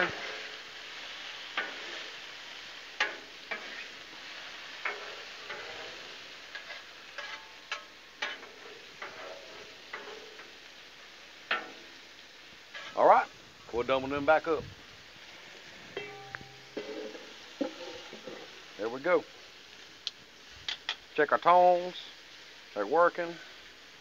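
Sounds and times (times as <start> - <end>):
metal spatula scraping griddle: 0.0 - 2.3, 2.9 - 10.6, 11.5 - 11.9, 12.7 - 13.0, 16.0 - 18.6
food sizzling on griddle: 0.0 - 24.0.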